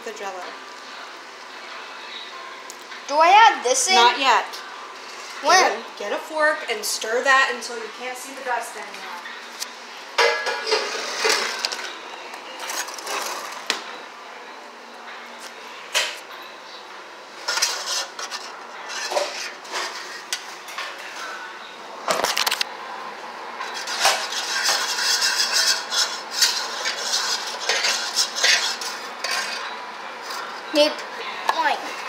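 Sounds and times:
fork scraping a metal pan: 10.3 - 11.6, 17.4 - 20.3, 23.6 - 29.7.

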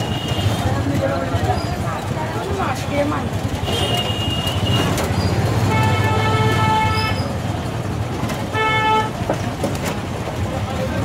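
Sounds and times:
rickshaw engine hum: 0.0 - 11.0
vehicle horn honking: 3.6 - 5.0, 5.6 - 7.3, 8.5 - 9.1.

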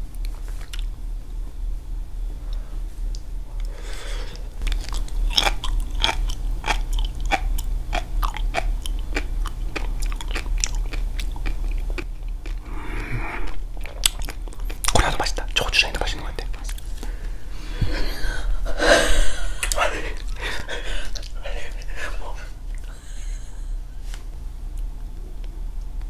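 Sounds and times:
seaweed chewed crunching: 0.2 - 0.9, 3.1 - 17.1, 19.5 - 23.1.

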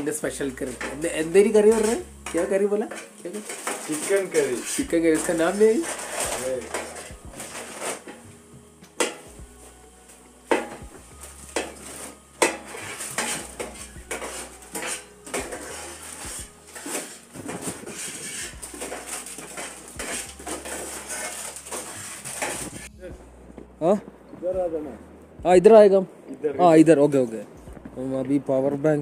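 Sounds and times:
metal spatula scraping frying pan: 0.0 - 9.3, 10.1 - 22.9.

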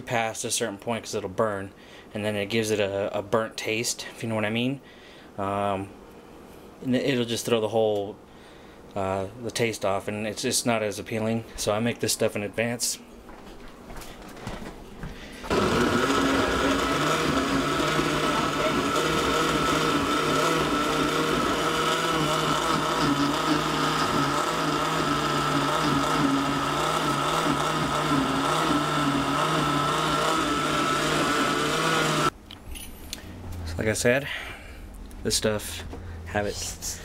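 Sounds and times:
blender running: 15.5 - 32.3.

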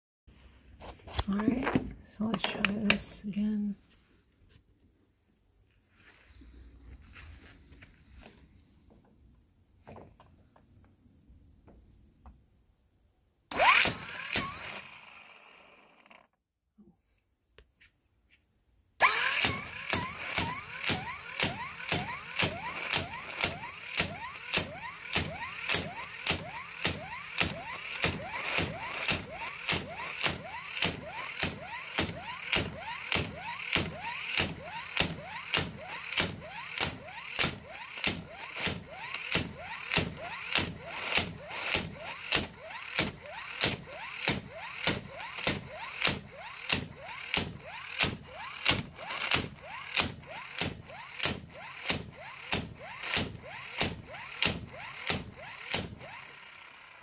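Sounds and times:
impact wrench hammering: 13.5 - 14.9, 19.0 - 56.4
motor whine: 13.5 - 16.2.

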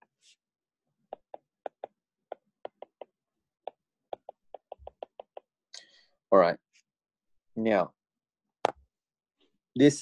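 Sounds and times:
stylus tapping on tablet: 1.1 - 5.6.

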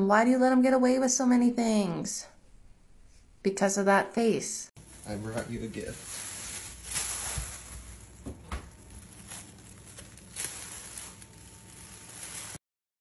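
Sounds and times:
plastic bag rustling and crinkling: 4.8 - 12.6
cats tussling: 5.8 - 12.6
soft thumps: 6.9 - 8.9.

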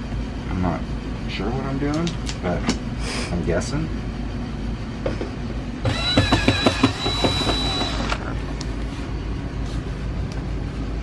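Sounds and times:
cordless drill whining: 5.8 - 8.2
sharp knocks: 5.9 - 8.0.

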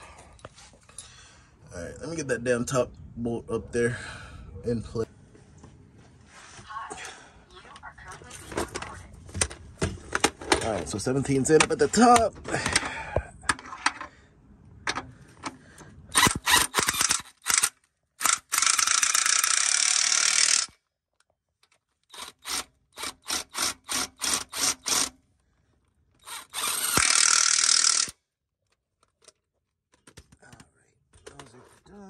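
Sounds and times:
power tool driving bolts: 14.9 - 20.8, 22.0 - 25.2, 26.2 - 28.2.

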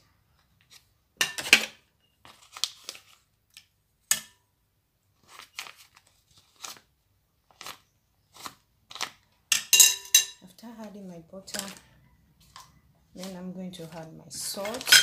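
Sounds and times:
wrapper crinkling and rustling: 2.2 - 3.3, 5.2 - 9.4, 10.8 - 15.0
metal spoon scraping: 12.4 - 15.0.

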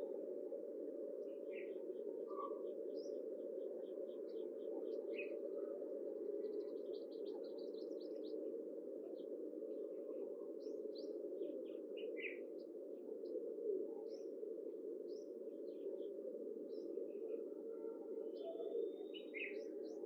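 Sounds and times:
small birds chirping: 18.4 - 20.0.

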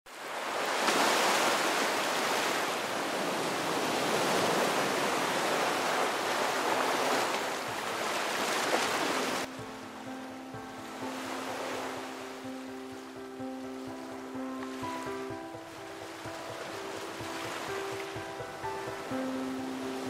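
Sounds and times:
ocean waves breaking: 0.1 - 20.0.

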